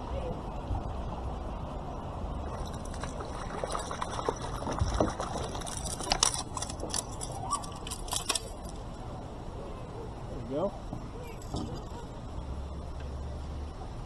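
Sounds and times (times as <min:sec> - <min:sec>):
water splashing and dripping: 0:02.4 - 0:07.7
fish thrashing and splashing: 0:02.4 - 0:08.1.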